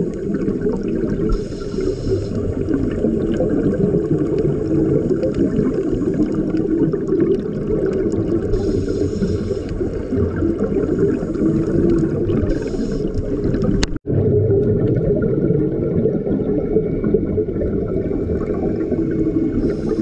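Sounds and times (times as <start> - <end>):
underwater exhaled air bubbling: 0.0 - 20.0
regulator inhale hiss: 1.3 - 2.7, 8.5 - 10.2, 10.8 - 13.5, 19.1 - 20.0.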